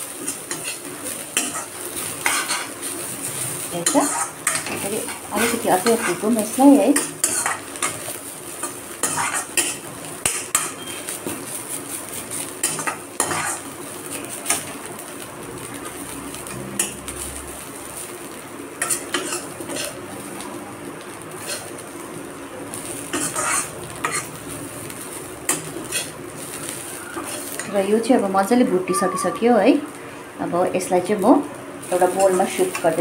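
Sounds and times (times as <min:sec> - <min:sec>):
faint sizzle: 0:00.0 - 0:33.0
metal ladle scraping a pan: 0:03.8 - 0:06.3, 0:07.0 - 0:08.0, 0:09.0 - 0:11.0, 0:12.6 - 0:13.6, 0:23.1 - 0:24.3, 0:25.5 - 0:26.1, 0:32.0 - 0:33.0.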